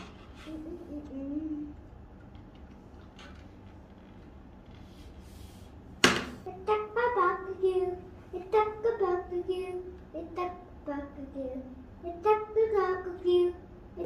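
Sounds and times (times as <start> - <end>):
child singing: 0.5 - 1.8, 6.4 - 14.0.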